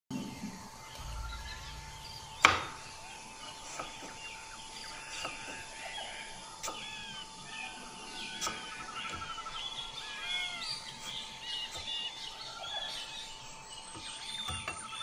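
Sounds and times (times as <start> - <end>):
faint chirps: 0.1 - 15.0
knife striking a cutting board: 1.0 - 2.9
steady thin tone: 1.0 - 4.1
sharp knock: 1.0 - 4.2.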